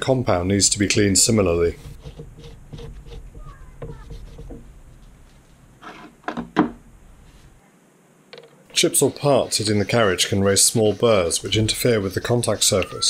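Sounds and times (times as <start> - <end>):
rag rubbing metal: 1.2 - 4.7, 9.4 - 13.0
sharp knocks on metal: 6.2 - 6.8.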